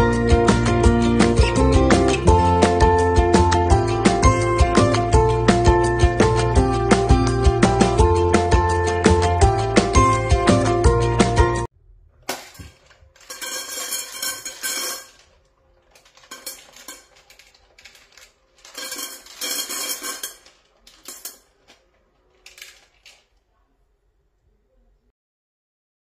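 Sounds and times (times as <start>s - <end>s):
dry kibble rattling in metal bowl: 12.3s - 23.3s.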